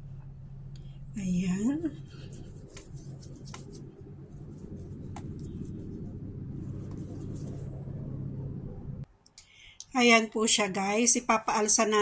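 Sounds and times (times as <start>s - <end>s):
low hum: 0.0s - 9.1s
dough rubbing on baking mat: 1.3s - 8.0s.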